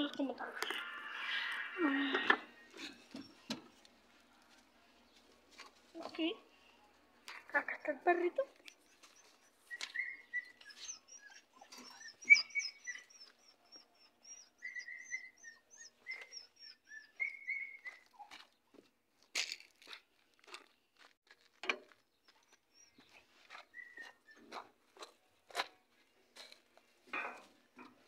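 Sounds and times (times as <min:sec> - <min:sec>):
puppy whimpering: 0:08.5 - 0:18.4.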